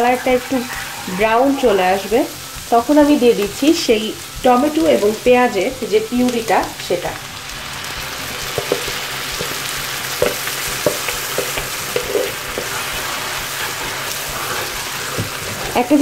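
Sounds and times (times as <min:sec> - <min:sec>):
paste sizzling in a frying pan: 0:00.0 - 0:16.0
wooden spatula stirring: 0:08.5 - 0:15.9.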